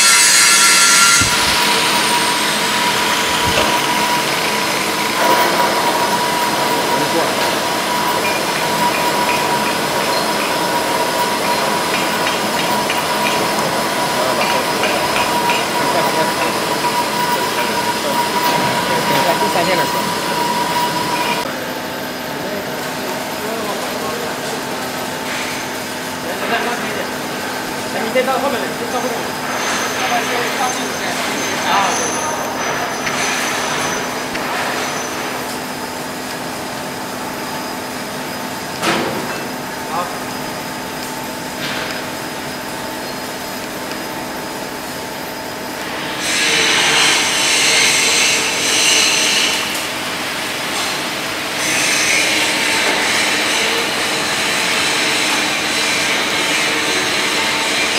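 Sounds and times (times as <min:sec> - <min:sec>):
bandsaw cutting steel bars: 0:00.0 - 0:21.5, 0:45.8 - 0:57.9.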